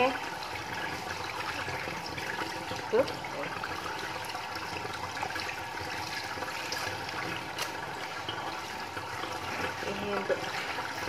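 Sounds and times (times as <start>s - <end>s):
hands rubbing and rinsing fish: 0.0s - 11.0s
water running from a hose: 0.0s - 11.0s.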